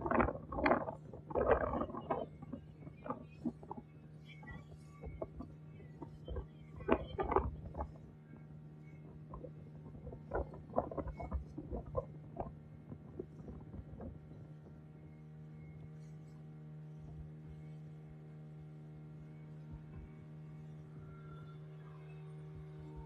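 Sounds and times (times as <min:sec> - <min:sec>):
water splashing against hull: 0:00.0 - 0:15.0
motorboat engine drone: 0:00.0 - 0:23.0.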